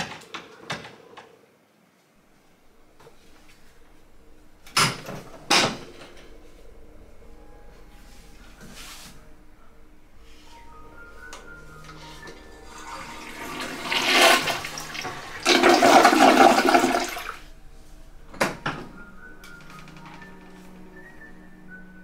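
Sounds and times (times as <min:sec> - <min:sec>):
toilet flushing: 0:11.8 - 0:17.5.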